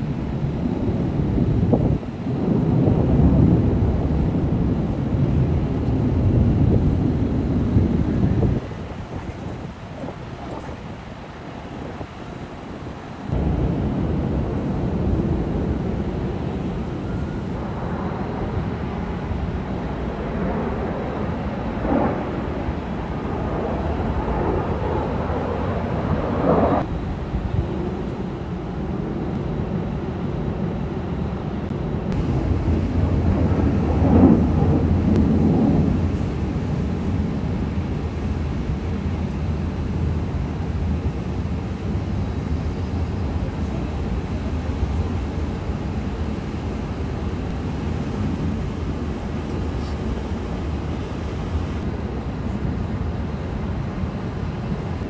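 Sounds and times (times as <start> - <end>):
aircraft engines rumbling overhead: 0.0 - 55.0.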